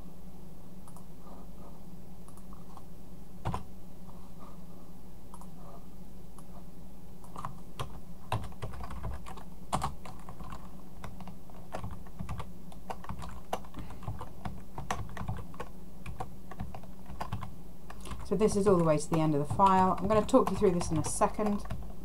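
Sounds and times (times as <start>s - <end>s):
steady low hum: 0.0s - 22.0s
typing on computer keyboard: 7.3s - 22.0s.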